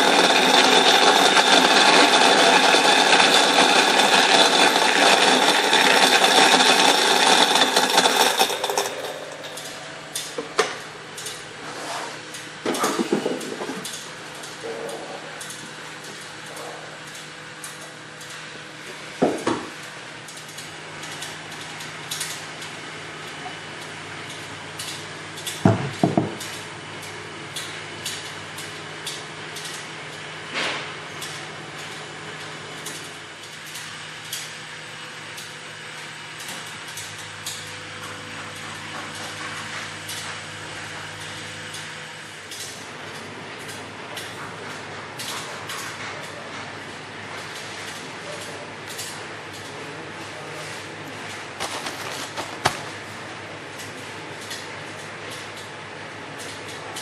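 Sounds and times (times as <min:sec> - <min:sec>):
mill grinding: 0:00.0 - 0:11.6, 0:51.1 - 0:53.2
machine hum: 0:00.0 - 0:16.4.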